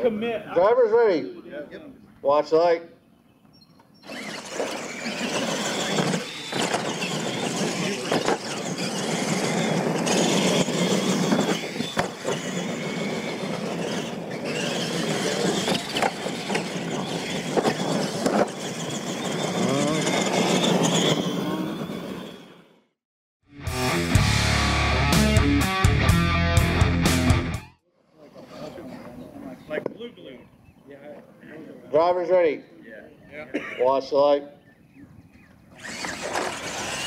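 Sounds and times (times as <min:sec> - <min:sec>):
toy truck motors whining: 0:03.6 - 0:22.9, 0:35.5 - 0:37.0.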